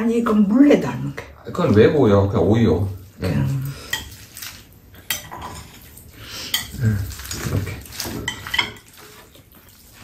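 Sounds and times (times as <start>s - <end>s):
soft rustling of food: 2.5s - 10.0s
metal chopsticks clinking bowls: 5.0s - 5.9s, 6.5s - 9.3s.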